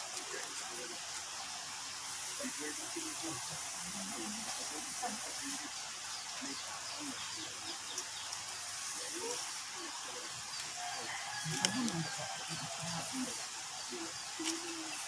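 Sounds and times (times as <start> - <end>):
steady hiss: 0.0 - 15.0
faint bird calls: 0.2 - 15.0.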